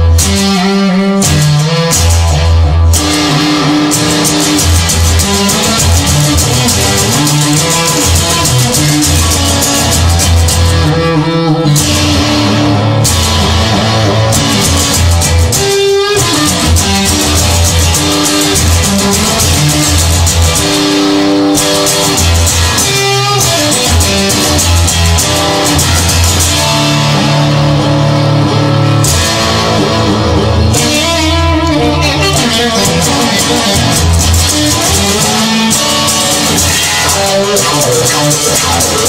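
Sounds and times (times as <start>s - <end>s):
rock music with electric guitar: 0.0s - 39.0s.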